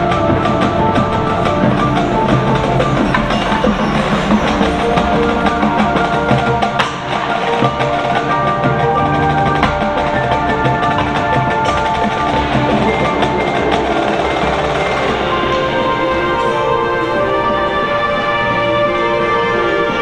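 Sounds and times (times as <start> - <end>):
marching band playing: 0.0 - 20.0
sharp percussion strikes: 0.0 - 20.0.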